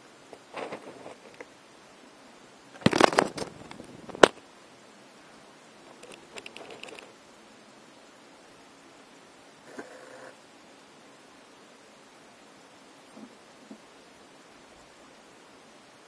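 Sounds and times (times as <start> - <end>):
small mechanical clicks and crackles: 5.9 - 7.1.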